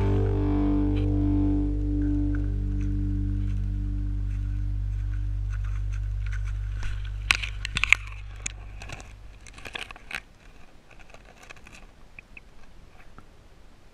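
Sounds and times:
background music: 0.0 - 7.5.

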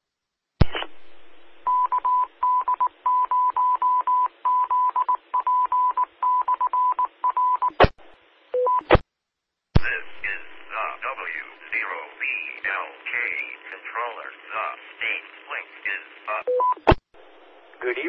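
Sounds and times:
radio transmission click: 0.6 - 1.0, 12.4 - 14.0
radio hiss: 0.6 - 1.4, 9.8 - 18.0
morse code tone: 16.4 - 16.8.

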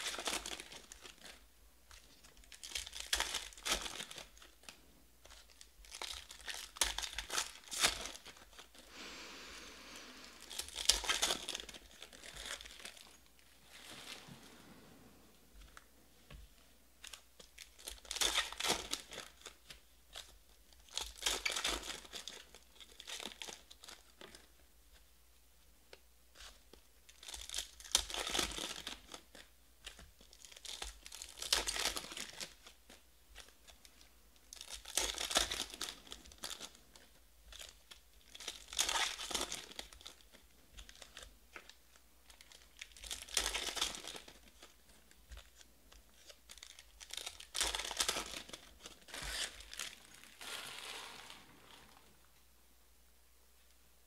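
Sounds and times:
foil wrappers tearing and crinkling: 0.0 - 1.4, 2.0 - 4.6, 5.3 - 8.8, 10.4 - 13.2, 17.0 - 19.6, 20.2 - 24.5, 27.1 - 32.8, 34.5 - 52.2.

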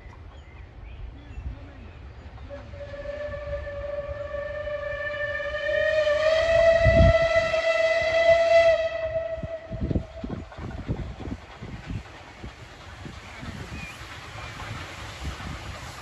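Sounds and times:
low steam engine chuffs: 0.0 - 16.0
steam locomotive whistle: 2.5 - 10.4.

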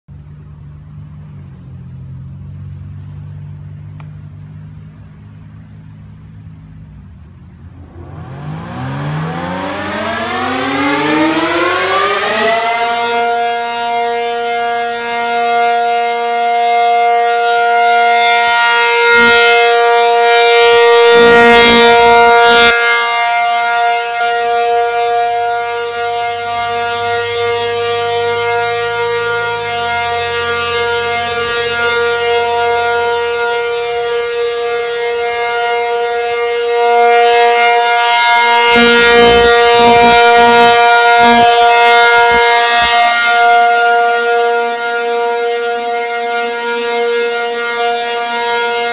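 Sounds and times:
warning siren wailing: 7.6 - 48.9.

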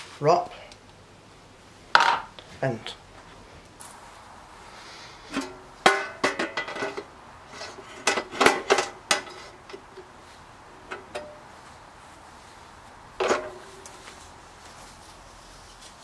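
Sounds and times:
metal grill lid clanking: 5.3 - 9.9, 13.2 - 13.7.

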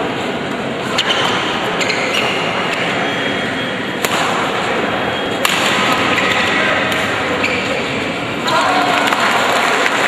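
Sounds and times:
hall background hubbub: 0.0 - 10.0
shoe squeaks on wooden court: 1.0 - 3.9, 7.3 - 8.0
rackets smacking shuttlecock: 4.0 - 4.7, 5.3 - 8.0.

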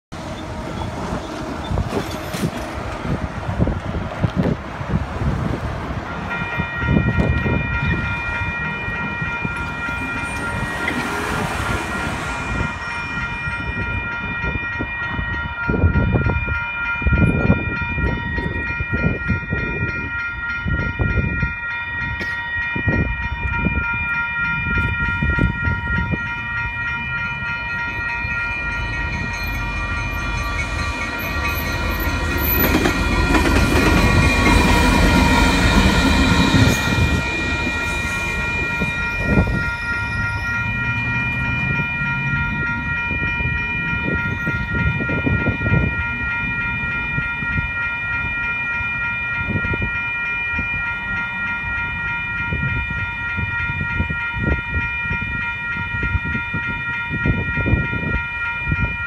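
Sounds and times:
road traffic rumbling: 0.1 - 15.0, 24.0 - 53.6
electronic crossing bell ringing: 6.0 - 59.0.

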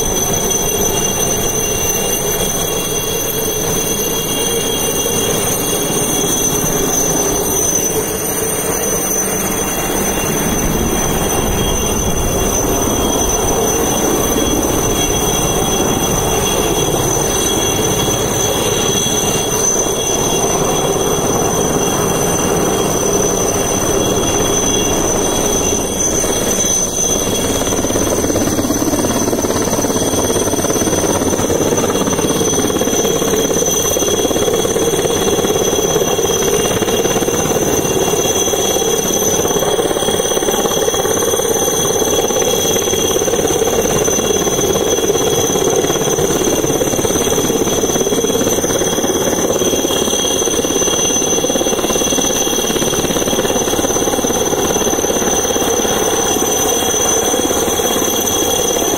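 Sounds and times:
helicopter rotor chop: 0.0 - 58.9
high whining tones: 0.1 - 58.9.

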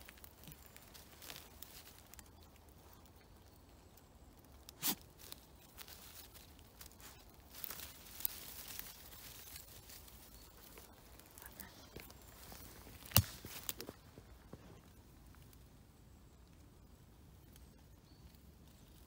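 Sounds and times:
dog rustling through leaves: 0.0 - 2.2, 5.0 - 13.8.

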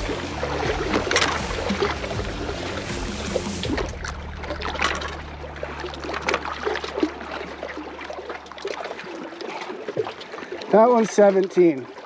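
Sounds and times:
low steady hum: 0.0 - 9.3
small splashes and clicks: 0.0 - 12.0
water lapping against rocks: 0.0 - 12.0.

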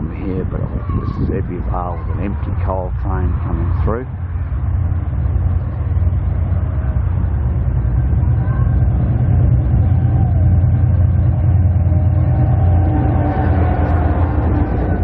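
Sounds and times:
locomotive engine rumbling: 0.0 - 15.0.

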